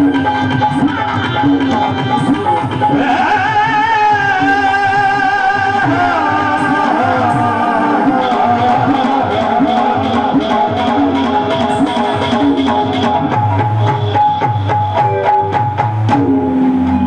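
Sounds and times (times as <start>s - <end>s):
drum rhythm: 0.0s - 17.0s
sustained melody with vibrato: 5.8s - 17.0s.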